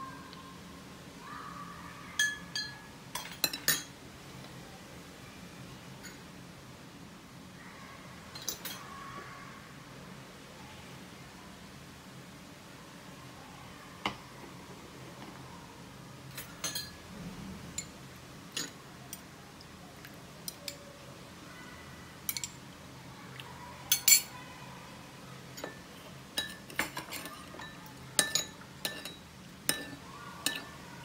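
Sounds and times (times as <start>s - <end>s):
spoon clinking on porcelain bowl: 2.2s - 3.9s, 16.4s - 17.0s, 22.3s - 22.6s, 23.9s - 24.3s, 26.4s - 30.7s.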